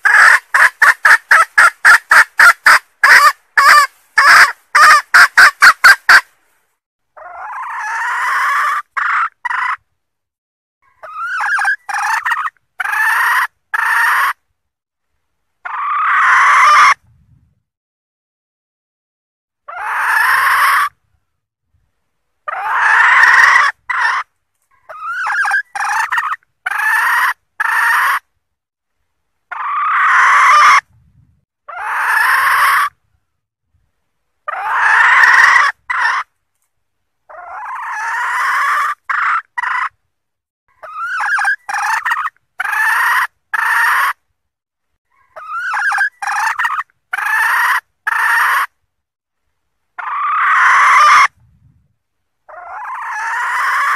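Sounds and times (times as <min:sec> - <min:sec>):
junglefowl hen cackling call: 0:00.0 - 0:06.3, 0:07.2 - 0:09.8, 0:10.9 - 0:14.4, 0:15.6 - 0:17.0, 0:19.7 - 0:21.0, 0:22.5 - 0:28.2, 0:29.5 - 0:30.9, 0:31.7 - 0:33.0, 0:34.5 - 0:36.3, 0:37.3 - 0:40.0, 0:40.7 - 0:44.2, 0:45.1 - 0:48.7, 0:50.0 - 0:51.4, 0:52.5 - 0:53.9.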